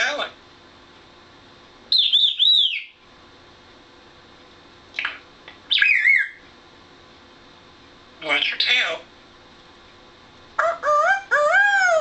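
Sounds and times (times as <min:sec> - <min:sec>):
parrot chirp: 0:01.9 - 0:03.0, 0:05.0 - 0:06.4, 0:08.2 - 0:08.9, 0:10.6 - 0:12.0
parrot whistling: 0:01.9 - 0:03.0, 0:05.7 - 0:06.4, 0:10.6 - 0:12.0.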